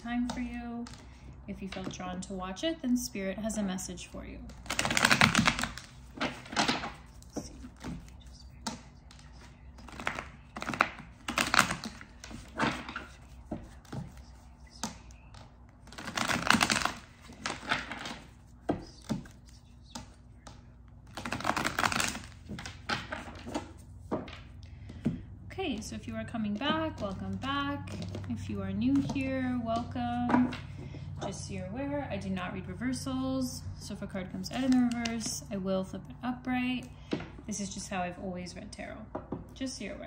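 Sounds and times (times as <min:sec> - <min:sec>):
cards being shuffled: 0:04.4 - 0:25.1.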